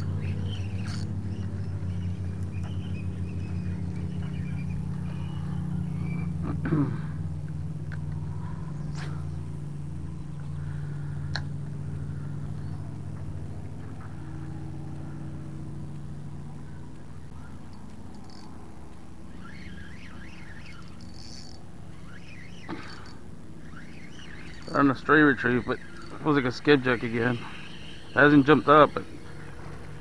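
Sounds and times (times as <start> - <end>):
engine idling: 0.0 - 30.0
high chirps: 17.3 - 29.5.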